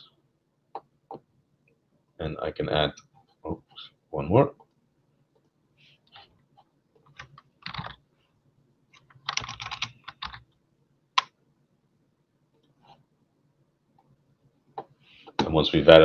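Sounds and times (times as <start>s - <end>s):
typing on a computer keyboard: 7.0s - 8.0s, 8.9s - 10.5s.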